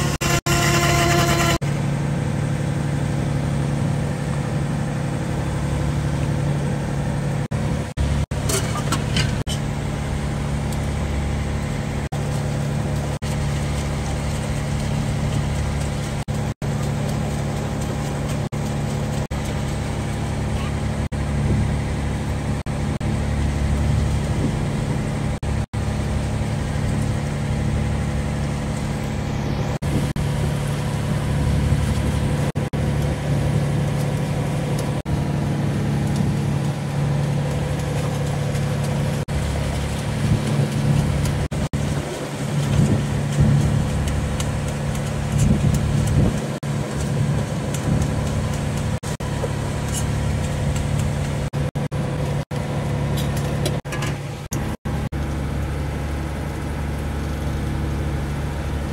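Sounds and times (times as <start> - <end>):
boat engine droning: 0.0 - 58.9.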